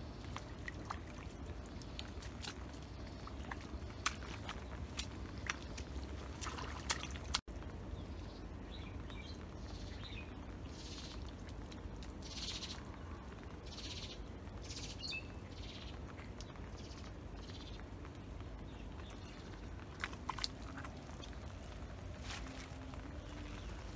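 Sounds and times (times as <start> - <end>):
steady low rumble: 15.3 - 23.9.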